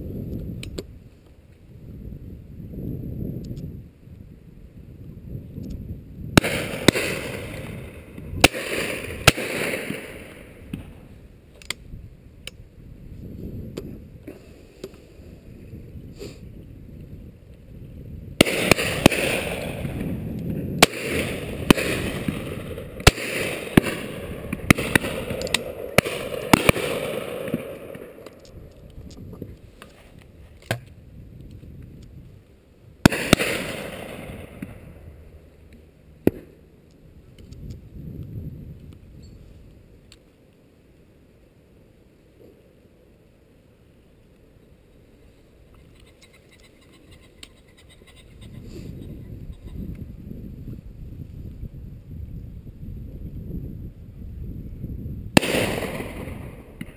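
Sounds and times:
shotgun shots with echo: 6.4s - 10.8s, 18.4s - 20.1s, 20.8s - 28.2s, 33.1s - 34.8s, 55.4s - 56.9s.

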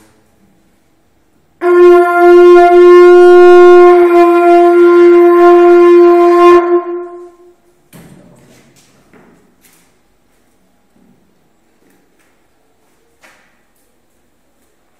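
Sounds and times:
conch shell trumpet note: 1.6s - 7.7s.

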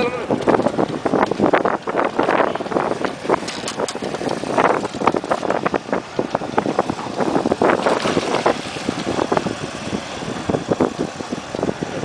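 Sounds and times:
water splashing against boat: 0.0s - 12.0s
wind buffeting microphone: 0.0s - 12.0s.

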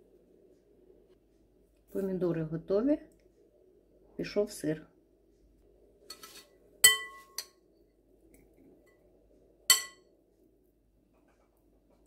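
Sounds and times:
glass bowl clinking on glass dish: 6.8s - 7.6s, 9.7s - 10.0s.

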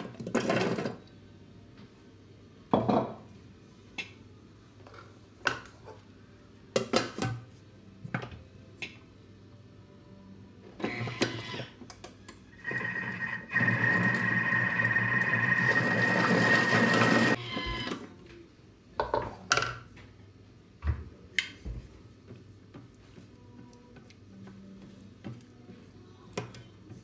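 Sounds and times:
food processor blades whirring: 12.6s - 17.4s.

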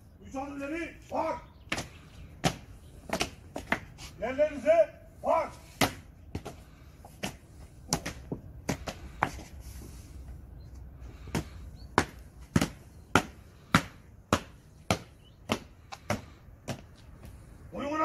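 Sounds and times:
boots stamping on stone: 11.2s - 17.4s.

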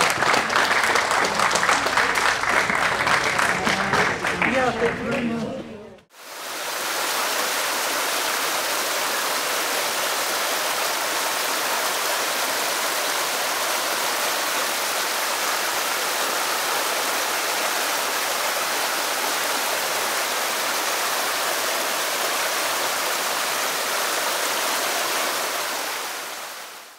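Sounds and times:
stream flowing over rocks: 6.1s - 26.9s.

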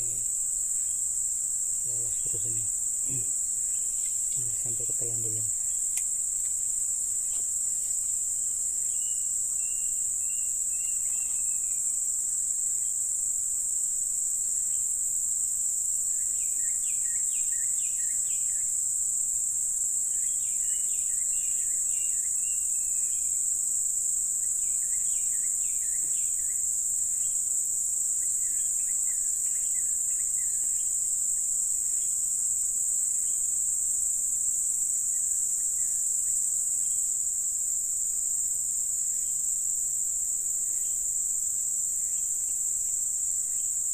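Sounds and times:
insects high-pitched drone: 0.0s - 43.9s
faint chirping calls: 1.8s - 12.0s, 16.1s - 18.8s, 20.1s - 23.4s, 24.4s - 32.2s.

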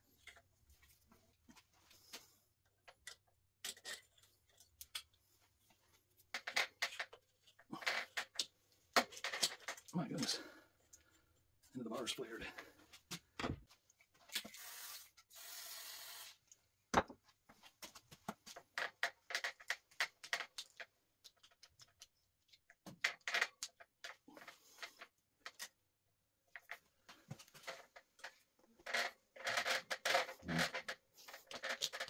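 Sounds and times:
metal clicks and scrapes: 27.6s - 32.0s.

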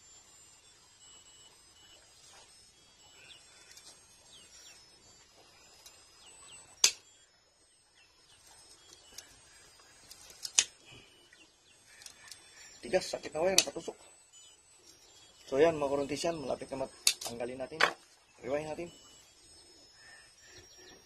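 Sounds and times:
birds chirping: 0.0s - 21.0s
tool working copper windings: 0.0s - 21.0s
sharp click: 17.0s - 18.0s.

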